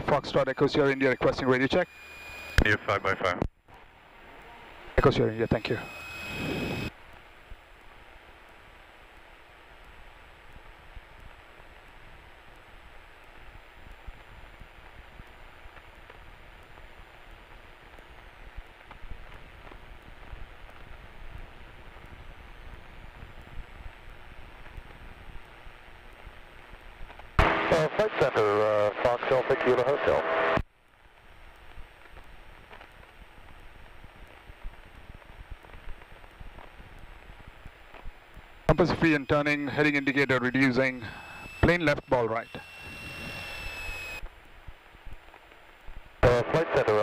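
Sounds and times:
headset intercom hiss: 0:00.0 - 0:03.4, 0:05.0 - 0:06.9, 0:27.4 - 0:30.6, 0:38.6 - 0:44.2, 0:46.2 - 0:47.0
faint aircraft engine: 0:00.3 - 0:27.0, 0:38.6 - 0:44.9.

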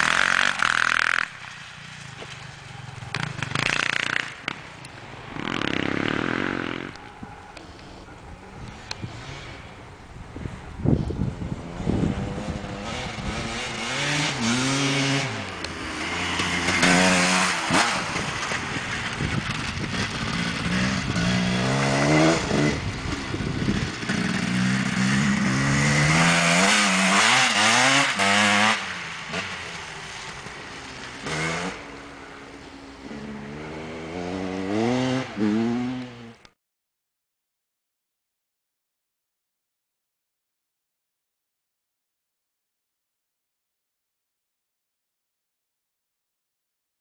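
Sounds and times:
dirt bike engine revving: 0:00.0 - 0:01.3, 0:02.9 - 0:04.6, 0:05.3 - 0:07.0, 0:12.0 - 0:30.4, 0:31.2 - 0:31.9, 0:33.0 - 0:36.4.

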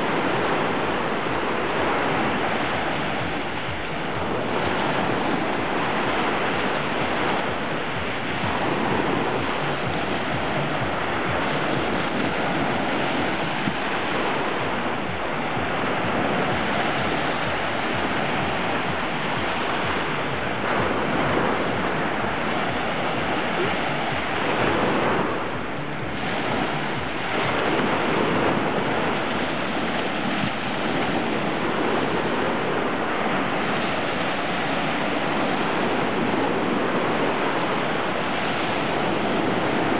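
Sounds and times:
waves washing up a beach: 0:00.0 - 0:39.9.

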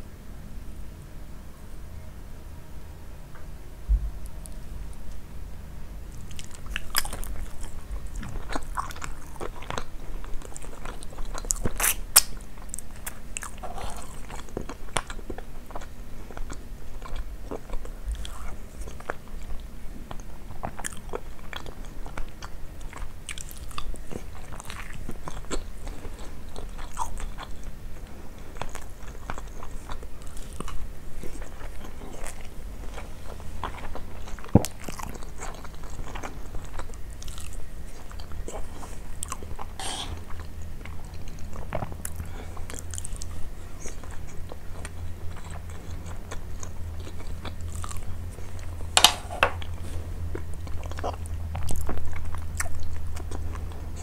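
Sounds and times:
person chewing food: 0:06.1 - 0:54.0.

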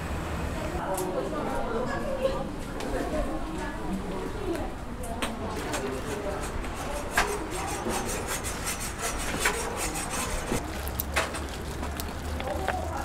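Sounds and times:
knife scraping on cutting board: 0:06.0 - 0:10.6.

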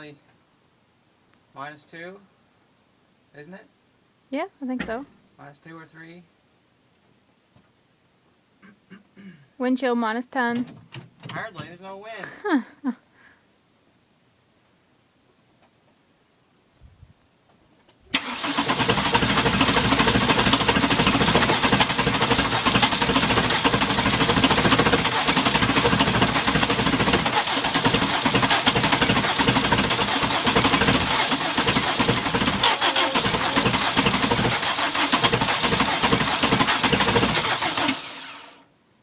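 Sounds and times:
diesel engine cranking: 0:18.1 - 0:38.6.

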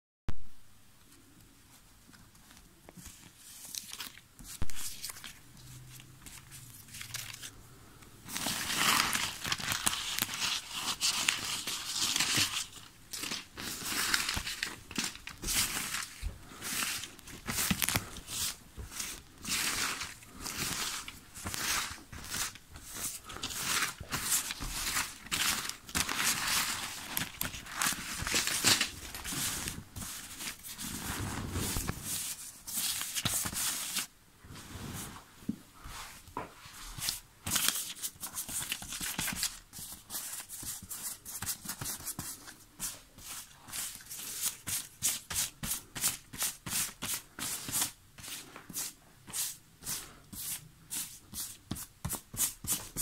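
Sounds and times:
paper banknotes rustling: 0:02.9 - 0:07.6, 0:08.3 - 0:34.1, 0:36.9 - 0:53.0.

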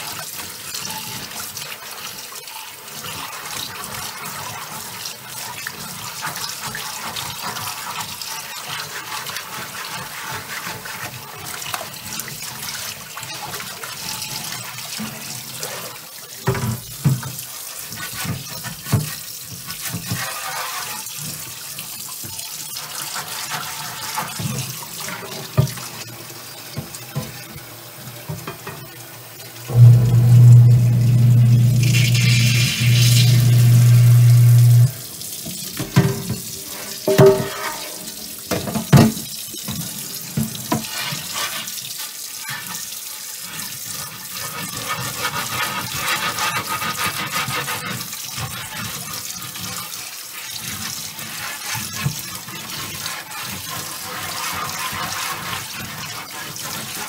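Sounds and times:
tap water running into sink: 0:00.0 - 0:57.0
low steady sound: 0:29.7 - 0:34.9
knocks: 0:37.1 - 0:38.0.

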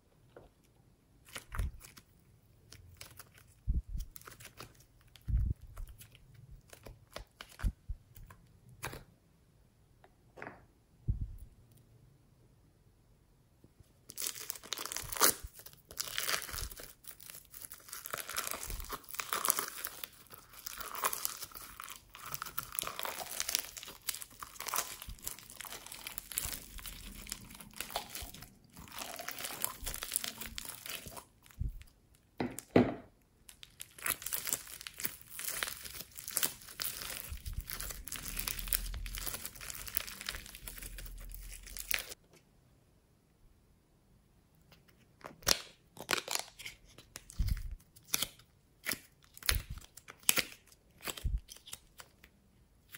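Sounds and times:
foam slime crackling: 0:14.2 - 0:31.8, 0:33.5 - 0:42.2.

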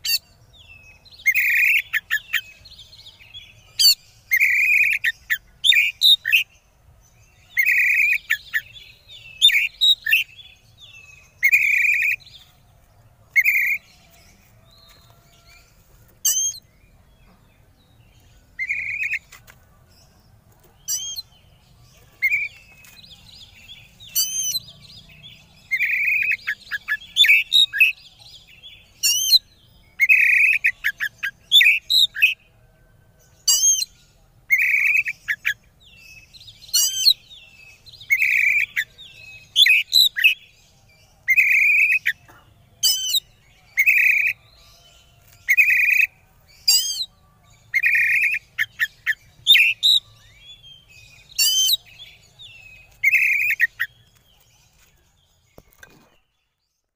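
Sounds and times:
bird singing harsh notes and whistles: 0:00.0 - 0:02.6, 0:03.8 - 0:06.5, 0:07.5 - 0:12.4, 0:16.2 - 0:16.7, 0:18.6 - 0:19.3, 0:20.9 - 0:21.3, 0:23.5 - 0:24.7, 0:28.8 - 0:32.4, 0:33.4 - 0:35.6, 0:38.0 - 0:40.4, 0:42.8 - 0:44.4, 0:45.5 - 0:54.0.

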